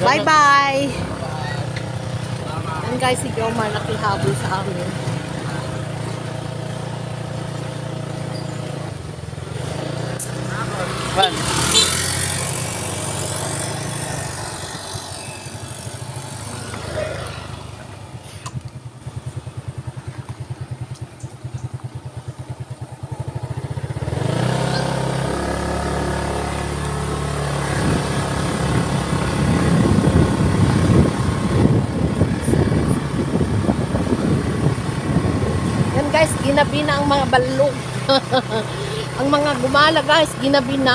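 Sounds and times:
wind and road noise: 0.0s - 40.9s
small vehicle engine putter: 20.0s - 22.1s.

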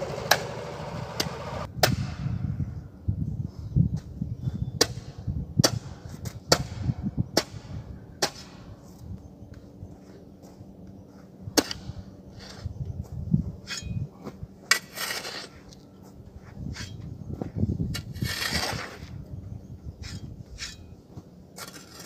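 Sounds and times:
hoe striking and scraping soil: 0.0s - 2.1s, 11.5s - 12.8s, 13.6s - 19.2s, 20.0s - 22.0s.

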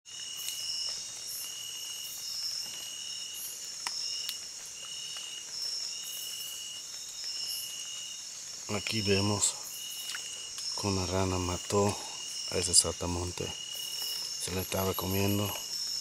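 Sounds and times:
insects shrilling: 0.1s - 16.0s
repeated insect call: 0.1s - 16.0s
faint clicks: 10.0s - 10.7s.

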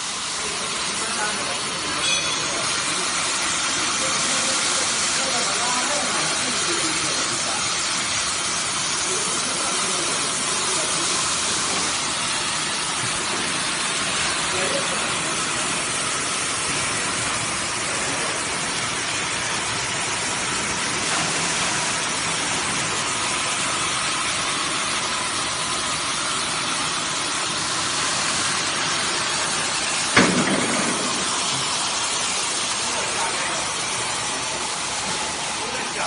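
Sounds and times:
gas cutting torches hissing: 0.0s - 36.0s
sharp knock: 30.1s - 31.5s.

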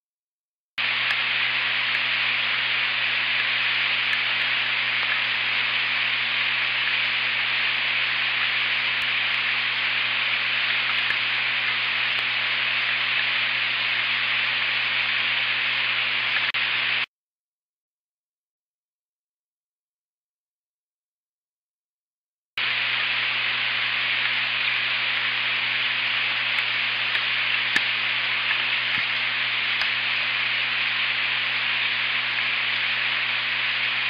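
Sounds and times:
rain hissing on a nest: 0.8s - 16.5s, 22.6s - 34.0s
low steady hum: 0.8s - 17.0s, 22.6s - 34.0s.

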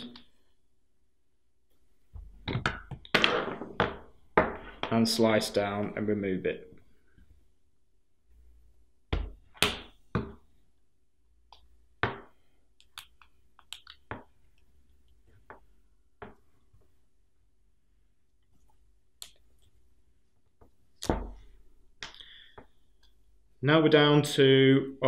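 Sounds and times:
hands clicking and scraping: 12.8s - 15.6s.

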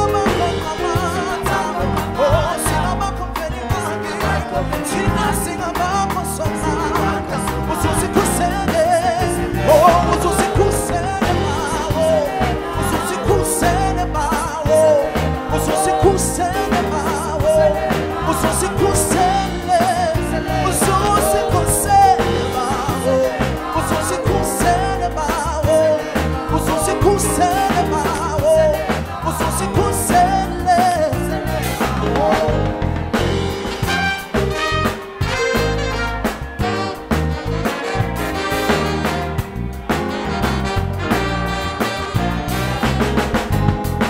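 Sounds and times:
people singing: 0.0s - 35.4s
jazz band playing: 0.0s - 44.0s
horns playing: 31.1s - 44.0s.

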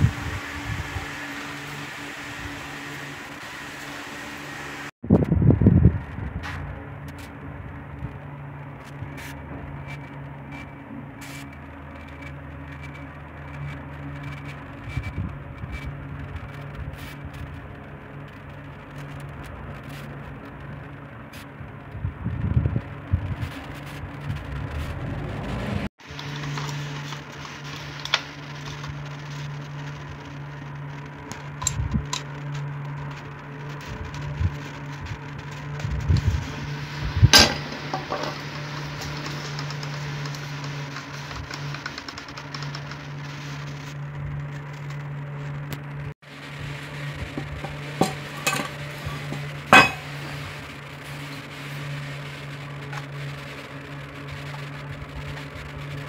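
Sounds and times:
steady low hum: 0.0s - 56.0s
metal clinks and knocks: 48.0s - 50.2s.

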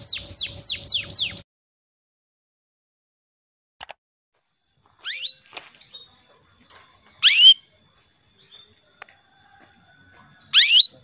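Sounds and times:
canary whistled call notes: 7.2s - 7.6s, 10.5s - 11.0s.

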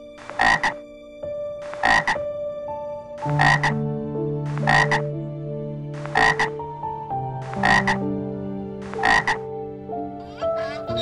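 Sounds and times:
frog croaking: 0.2s - 0.8s, 1.6s - 2.2s, 3.2s - 3.8s, 4.5s - 5.1s, 6.0s - 6.7s, 7.4s - 8.1s, 8.8s - 9.5s.

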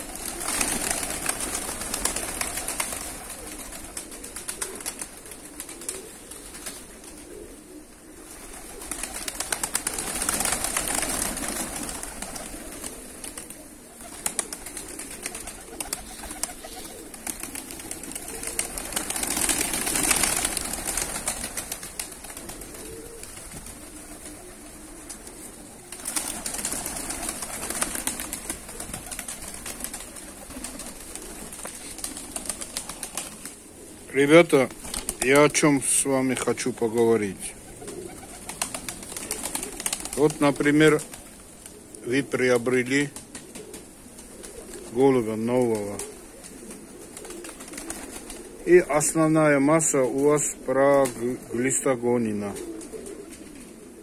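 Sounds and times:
pigeons pecking clatter: 0.0s - 7.4s, 8.4s - 33.6s, 37.6s - 42.0s, 43.1s - 45.0s, 45.6s - 48.6s
pigeon wings flapping: 0.0s - 54.0s
pigeons cooing softly: 0.0s - 54.0s.

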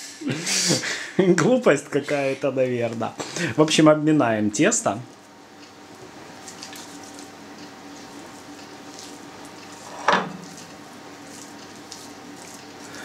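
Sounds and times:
hands handling dough: 6.3s - 13.0s.

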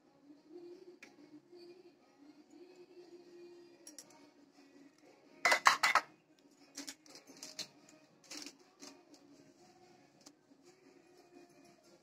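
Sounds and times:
spoon clinking against dishes: 5.4s - 6.1s.

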